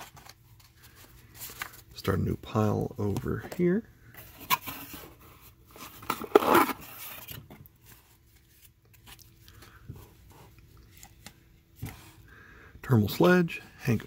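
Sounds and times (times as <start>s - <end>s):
cards rustling: 0.0s - 12.3s.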